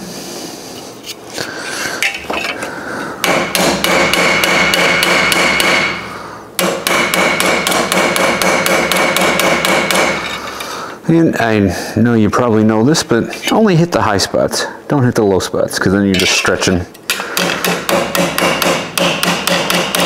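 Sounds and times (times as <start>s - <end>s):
hammer striking steel panel: 3.2s - 6.0s, 6.6s - 10.3s, 17.1s - 20.0s.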